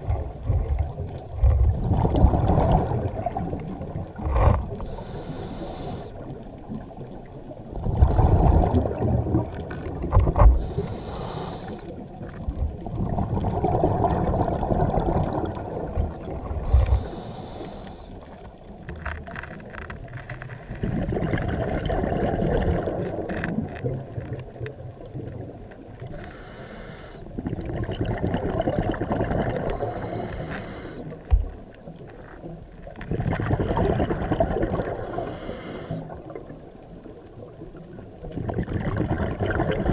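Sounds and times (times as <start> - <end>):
exhaled bubbles rumbling: 0.0 - 26.2, 27.3 - 30.5, 31.1 - 39.9
regulator hissing inhalations: 4.9 - 6.2, 10.6 - 11.9, 16.7 - 18.2, 26.1 - 27.3, 29.7 - 31.2, 35.0 - 36.1.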